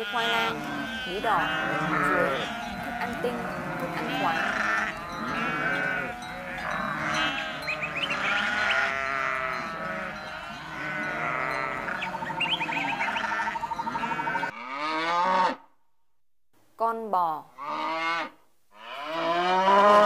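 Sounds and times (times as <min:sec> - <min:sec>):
sheep bleating: 0:00.0 - 0:15.6, 0:17.6 - 0:20.0.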